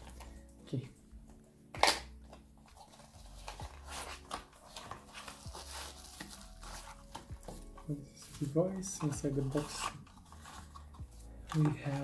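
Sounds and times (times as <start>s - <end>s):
cardboard box packaging rustling: 2.6s - 12.0s.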